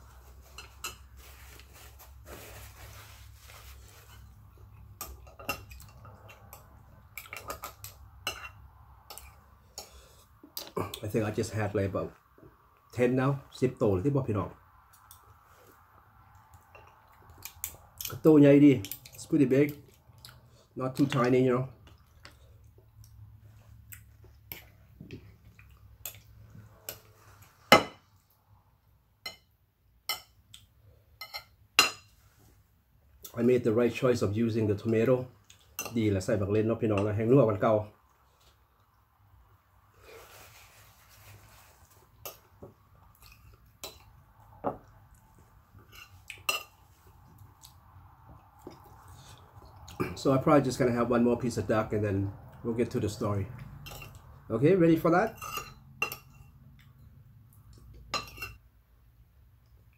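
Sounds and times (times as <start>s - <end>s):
soft rustling: 0.0s - 4.5s, 40.0s - 42.7s
tableware clinking on a plate: 55.3s - 56.5s, 58.2s - 58.6s.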